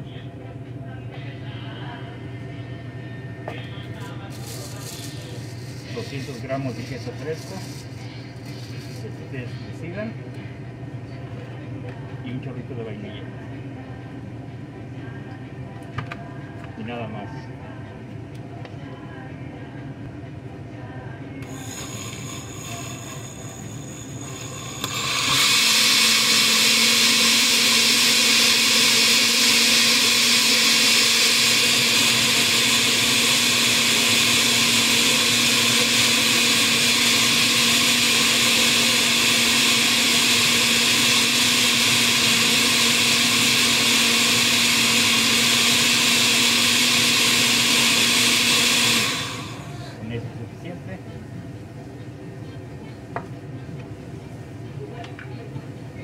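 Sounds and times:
blender whirring: 4.3s - 9.1s, 21.4s - 50.0s.

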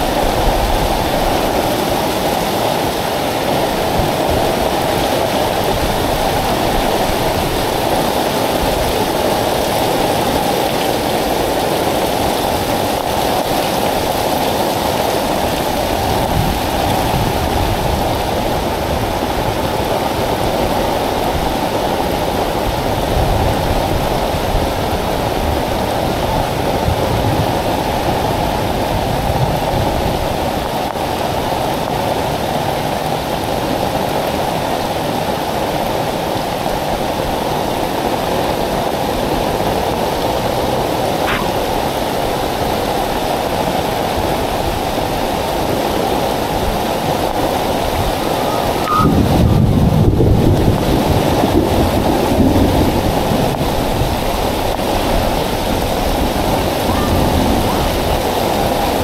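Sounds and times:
heavy rain pouring on street: 0.0s - 59.0s
rain drumming on umbrella: 0.0s - 59.0s.

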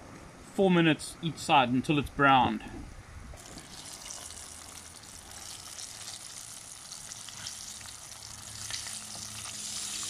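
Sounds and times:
fish sizzling in frying oil: 3.4s - 10.0s.

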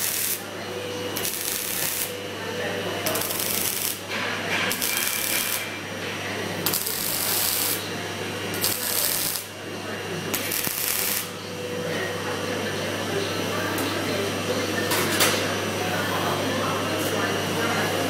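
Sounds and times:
welding arc crackling and hissing: 0.0s - 2.2s, 3.0s - 4.0s, 4.7s - 5.7s, 6.6s - 7.9s, 8.5s - 9.6s, 10.3s - 11.4s.

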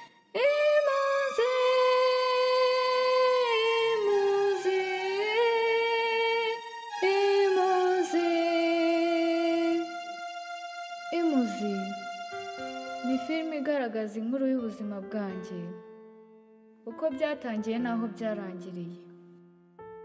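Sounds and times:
high voice singing wordless notes: 0.4s - 10.0s, 11.1s - 12.0s, 13.0s - 15.7s.

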